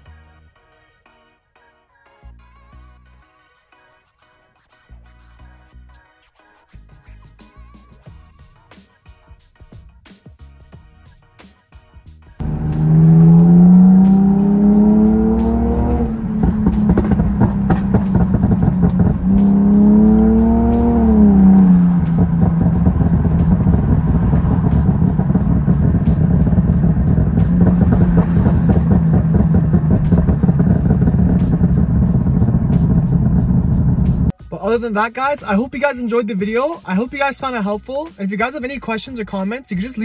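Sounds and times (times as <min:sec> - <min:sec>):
car engine accelerating: 0:12.4 - 0:34.3.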